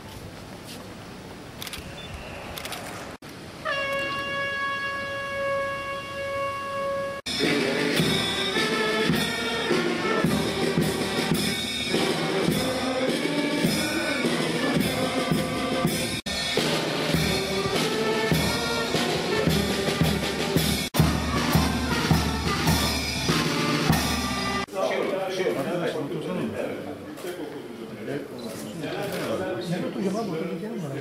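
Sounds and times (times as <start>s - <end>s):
long brass note: 3.6s - 7.2s
military brass band playing: 3.6s - 24.7s
drum strokes: 7.3s - 24.7s.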